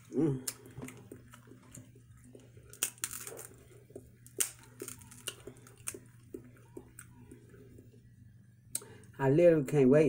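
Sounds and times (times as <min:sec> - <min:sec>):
crab shell cracking: 0:00.0 - 0:07.5
close-up chewing: 0:00.0 - 0:08.2.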